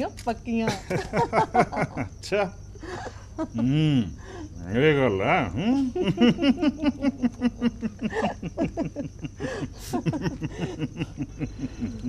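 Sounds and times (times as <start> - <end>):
crickets chirping: 0.0 - 12.0
hearty human laughter: 0.7 - 4.1, 5.6 - 12.0.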